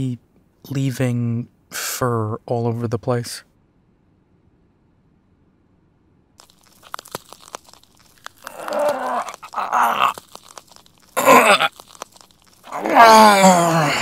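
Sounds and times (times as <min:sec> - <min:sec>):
crunching cracking clicks: 0:06.4 - 0:14.0
harsh growl: 0:08.4 - 0:10.2, 0:11.2 - 0:11.7, 0:12.6 - 0:14.0
low strained vocal groans: 0:08.4 - 0:10.2, 0:11.2 - 0:11.7, 0:12.7 - 0:14.0.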